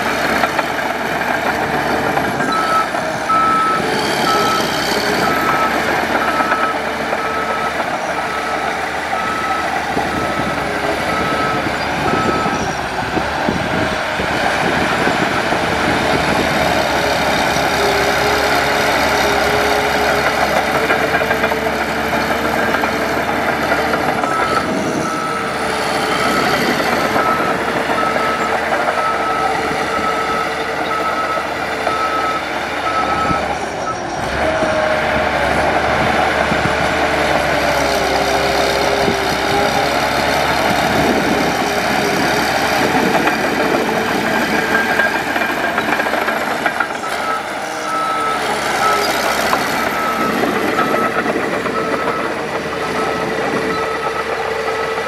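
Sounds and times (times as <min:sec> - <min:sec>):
diesel engine running: 0:00.0 - 0:55.0
reversing alarm beeping: 0:01.4 - 0:12.8, 0:22.1 - 0:34.2, 0:40.6 - 0:55.0.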